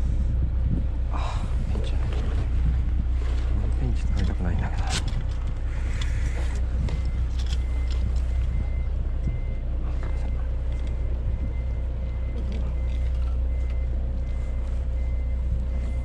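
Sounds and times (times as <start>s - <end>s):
constant hum: 0.0s - 16.0s
low mechanical rumble: 0.0s - 16.0s
handling clicks and rustles: 3.2s - 15.2s.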